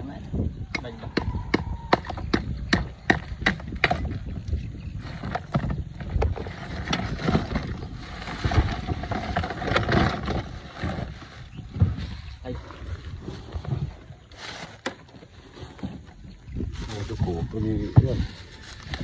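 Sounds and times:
wind noise: 0:00.0 - 0:19.0
ice rattling and shifting: 0:04.9 - 0:19.0.

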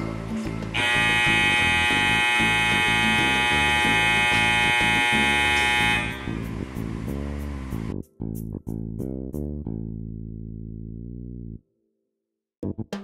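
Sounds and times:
background music: 0:00.0 - 0:11.7
electronic alarm buzzer: 0:00.8 - 0:06.7.

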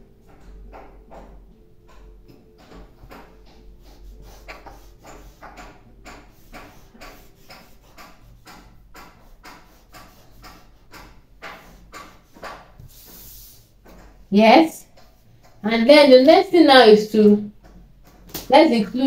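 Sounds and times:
marker scraping on paper: 0:03.5 - 0:13.7.

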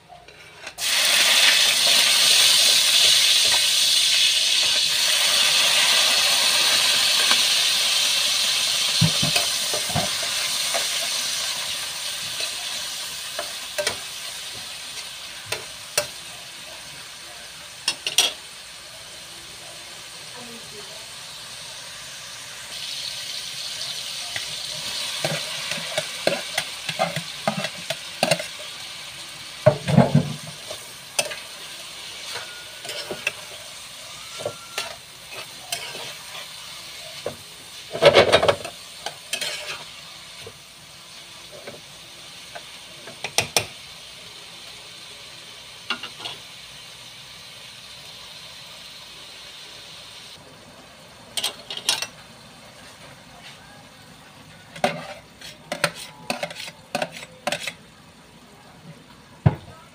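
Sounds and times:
food sizzling: 0:00.0 - 0:59.9
spatula scraping frying pan: 0:24.7 - 0:28.8, 0:29.8 - 0:37.3, 0:37.9 - 0:40.0, 0:54.7 - 0:57.9.

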